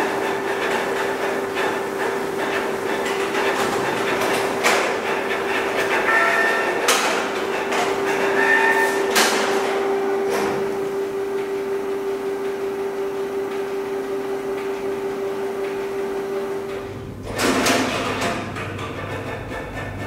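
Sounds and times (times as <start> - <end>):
sharp paper feed clacks: 0.0 - 10.6
printer motor hum: 0.0 - 20.0.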